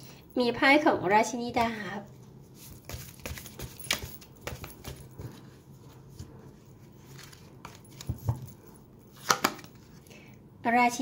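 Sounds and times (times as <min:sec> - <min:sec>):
cards being shuffled: 0:02.6 - 0:05.5, 0:07.0 - 0:08.3.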